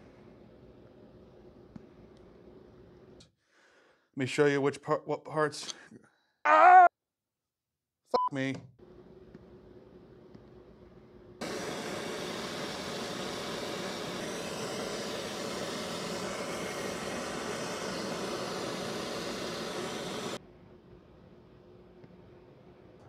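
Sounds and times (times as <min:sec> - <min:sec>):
propane torch flame hissing: 0:09.5 - 0:20.4.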